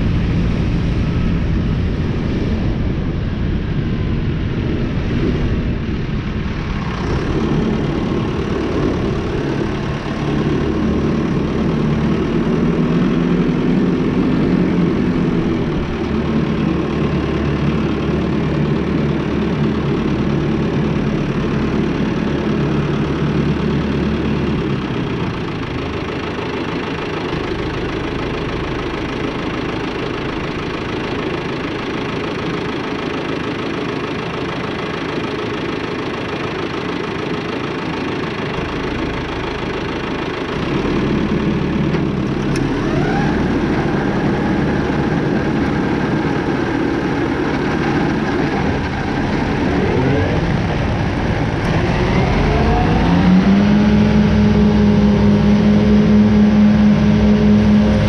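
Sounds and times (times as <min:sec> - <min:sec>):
tractor engine running: 0:00.0 - 0:58.0
disc mowers cutting grass: 0:07.0 - 0:58.0.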